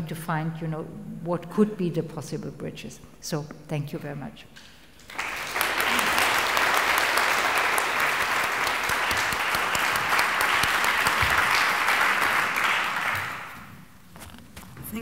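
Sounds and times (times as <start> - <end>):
audience applauding: 5.0 - 13.8.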